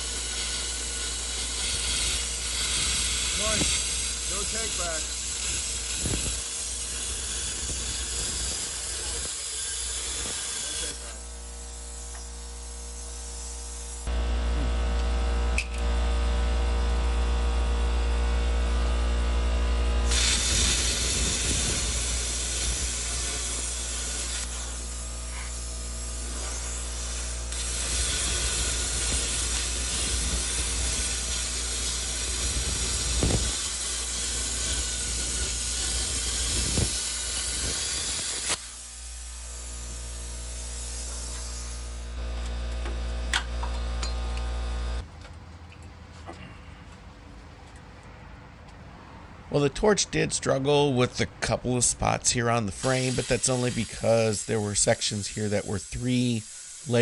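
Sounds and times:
plasma cutter torch hissing: 0:00.0 - 0:14.1, 0:20.1 - 0:42.2, 0:52.6 - 0:57.0.

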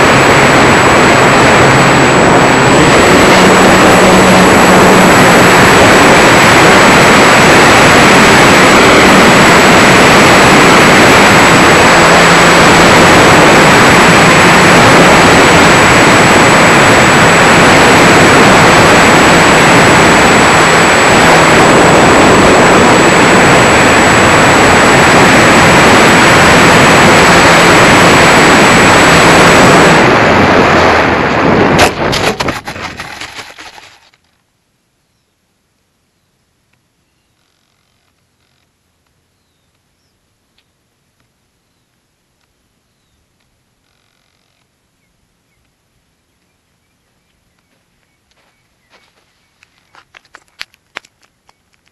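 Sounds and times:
thin high motor whine: 0:00.0 - 0:34.2, 0:36.9 - 0:40.2
wind and propeller buffeting: 0:00.0 - 0:34.3, 0:47.2 - 0:51.9
plane rattling and scraping: 0:31.7 - 0:34.3.

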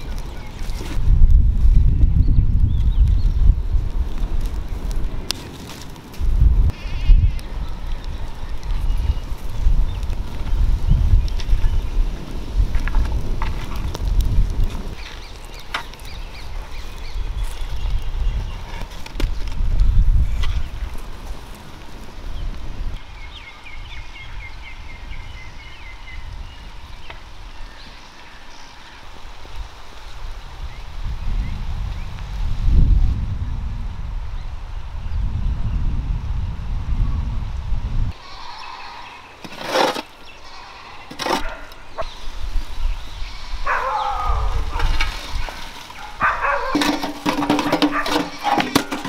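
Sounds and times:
bird chirping: 0:38.2 - 0:44.6.

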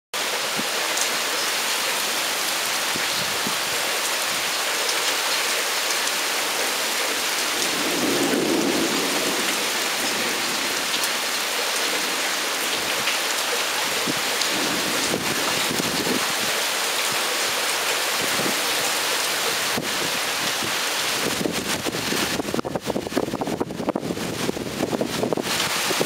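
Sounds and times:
heavy rain falling: 0:00.2 - 0:26.0
thunder rumble: 0:06.8 - 0:13.1, 0:13.9 - 0:16.5.

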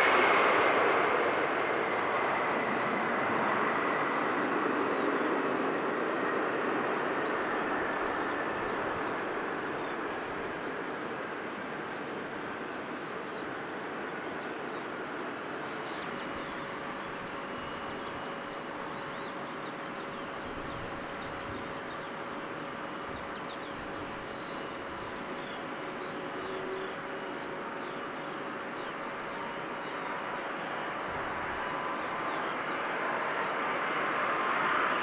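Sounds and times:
jet engine rushing: 0:00.0 - 0:23.2
faint steady whine: 0:00.0 - 0:35.0
small birds chirping: 0:04.9 - 0:34.5.

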